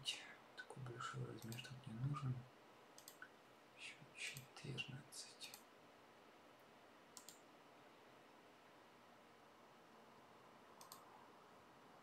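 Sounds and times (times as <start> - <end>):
faint room hiss: 0.0 - 12.0
computer mouse double-click: 3.0 - 3.2, 7.2 - 7.4, 10.8 - 11.1.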